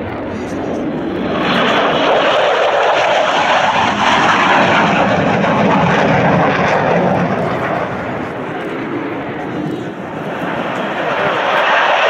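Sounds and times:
jet fighter flying past: 0.0s - 12.0s.

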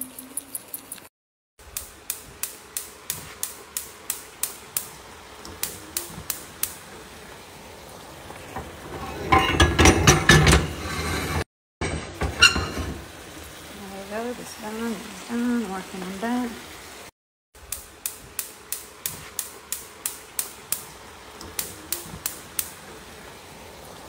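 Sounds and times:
gas hob igniter clicking: 1.7s - 6.8s, 17.7s - 22.8s
cookware clattering: 8.5s - 13.1s.

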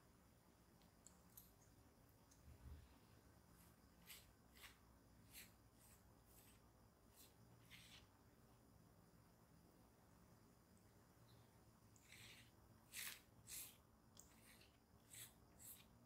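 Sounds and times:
pastry brush swishes: 3.6s - 8.0s.

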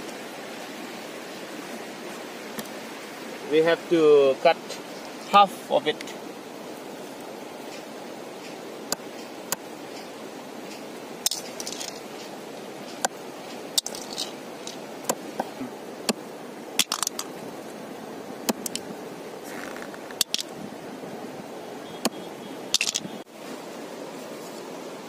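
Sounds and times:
steady background noise: 0.0s - 25.0s
sharp cracks on wooden board: 16.8s - 17.3s
machete chopping snail shells: 18.5s - 18.8s.

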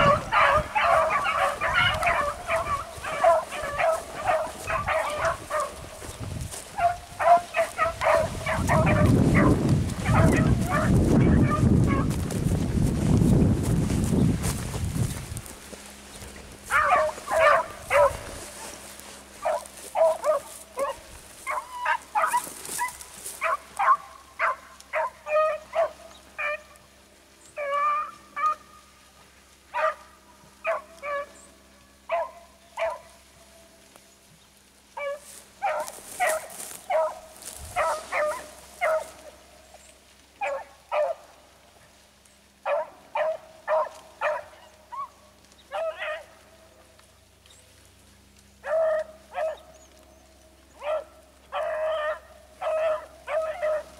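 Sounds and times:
pack of dogs baying: 0.0s - 12.6s, 14.0s - 28.9s, 29.6s - 33.5s, 34.9s - 41.8s, 42.4s - 47.4s, 48.0s - 53.9s.

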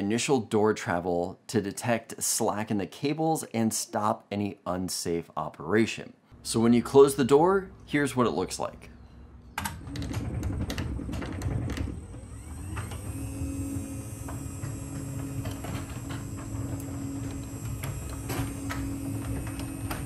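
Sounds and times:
door rollers clicking in tracks: 9.6s - 20.0s
garage door opener motor hum: 9.6s - 20.0s.

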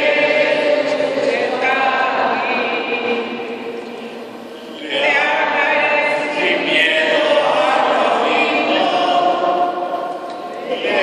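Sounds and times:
group singing a hymn: 0.0s - 11.0s.

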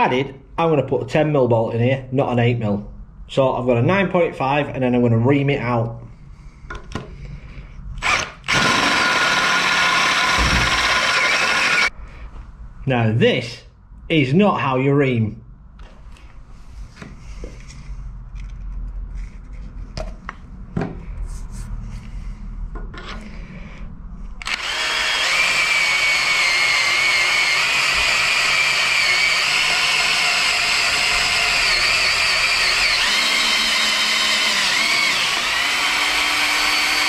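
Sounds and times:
cordless drill whining: 8.0s - 11.9s, 24.4s - 37.0s.

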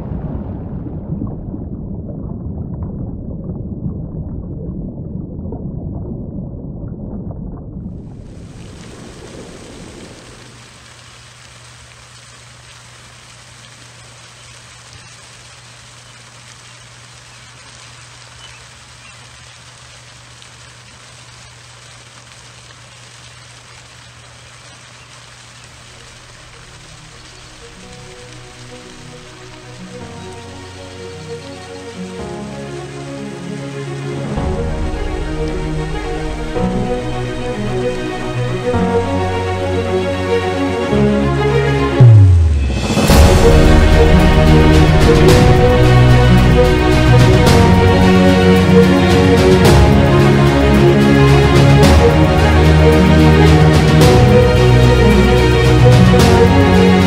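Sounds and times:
muffled churning water rumble: 0.0s - 57.0s
faint crackles: 0.6s - 32.2s.

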